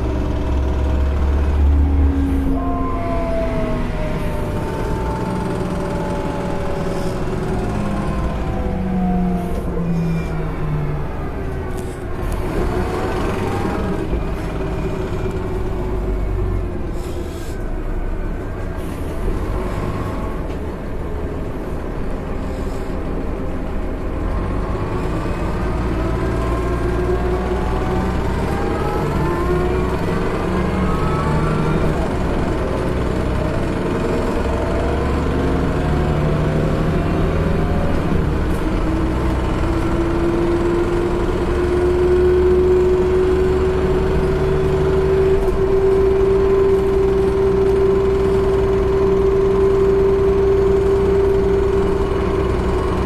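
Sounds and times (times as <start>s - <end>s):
bus drivetrain whine: 0.0s - 53.0s
air brake hisses: 16.9s - 17.7s.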